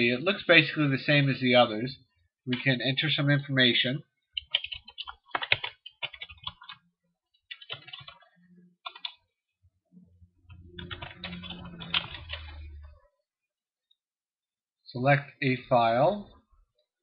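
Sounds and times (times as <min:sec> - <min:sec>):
low hum: 0:09.9 - 0:13.1.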